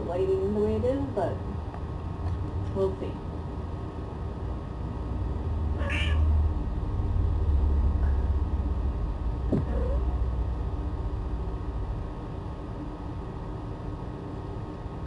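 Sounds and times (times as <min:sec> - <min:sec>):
low rumble: 0:04.5 - 0:14.4.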